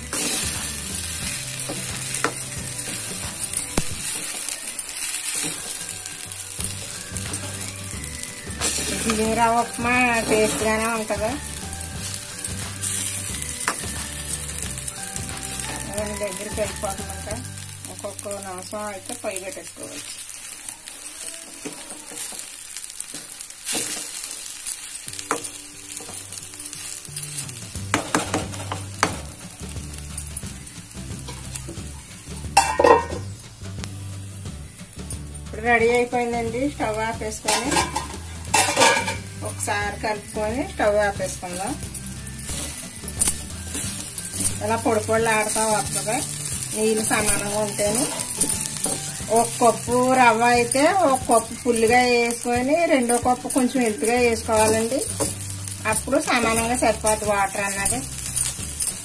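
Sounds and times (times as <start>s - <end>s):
spoon scraping in a pan: 0.0s - 30.5s, 32.5s - 33.3s, 37.4s - 59.0s
faint background music: 0.0s - 59.0s
food sizzling: 0.0s - 59.0s
spatula scraping metal pan: 37.4s - 39.4s.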